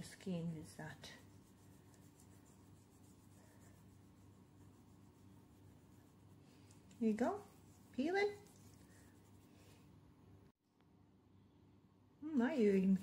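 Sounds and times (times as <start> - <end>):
steady low hum: 0.0 - 12.3
fingertips rubbing skin: 0.9 - 9.8.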